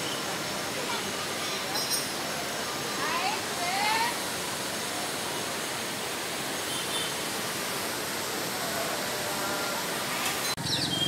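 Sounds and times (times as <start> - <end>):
flooded river rushing: 0.0 - 11.0.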